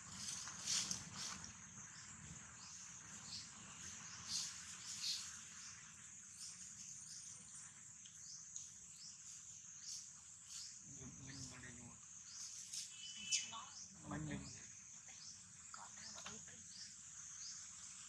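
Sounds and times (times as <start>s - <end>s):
dry leaves rustling: 0.0s - 1.7s
insect chorus: 0.0s - 18.0s.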